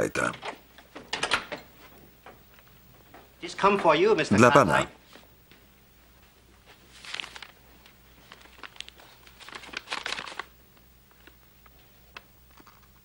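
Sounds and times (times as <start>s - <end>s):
paper envelope rustling: 6.7s - 13.0s
small paper clicks: 7.0s - 10.5s.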